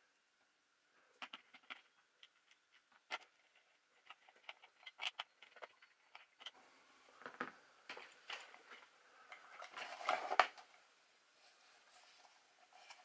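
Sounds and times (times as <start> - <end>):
plastic parts clicking and knocking: 1.1 - 6.6, 7.2 - 10.8.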